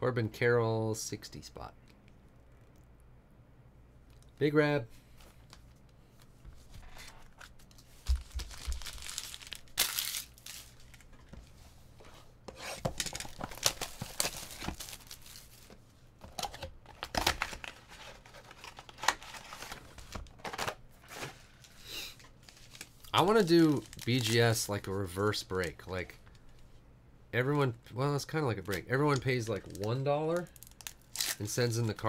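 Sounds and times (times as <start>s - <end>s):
wrappers crinkling and tearing: 7.3s - 11.1s, 13.0s - 15.8s, 16.9s - 24.9s, 29.5s - 31.8s.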